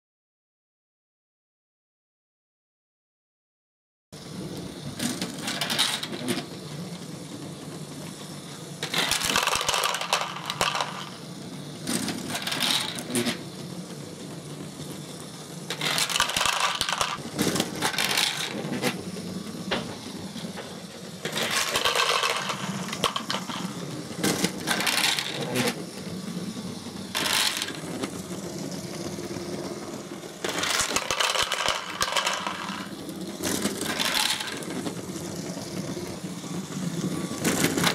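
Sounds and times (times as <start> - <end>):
toy motors humming: 4.2 - 37.9
plastic balls clattering: 5.0 - 6.5, 8.8 - 11.2, 11.8 - 13.4, 15.7 - 19.0, 21.2 - 25.8, 27.1 - 28.4, 29.2 - 35.0, 37.3 - 37.9.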